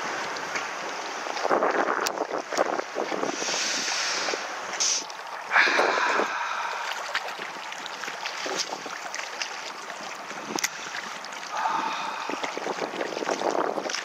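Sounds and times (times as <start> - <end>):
river water lapping against concrete: 0.0 - 14.0
strong gusty wind: 1.4 - 4.6, 5.5 - 6.9, 11.5 - 13.9.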